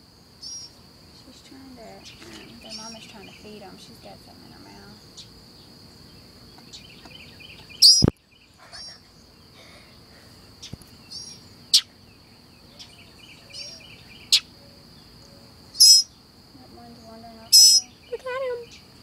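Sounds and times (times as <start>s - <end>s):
high insect drone: 0.0s - 19.0s
sharp bird chirps: 0.4s - 0.8s, 5.1s - 9.5s, 10.6s - 16.2s, 17.5s - 19.0s.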